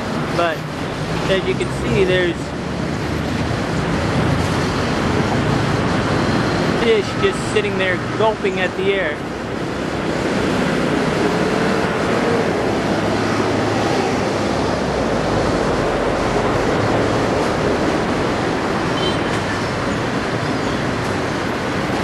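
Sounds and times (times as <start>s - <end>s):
loud engine rumble: 0.0s - 22.0s.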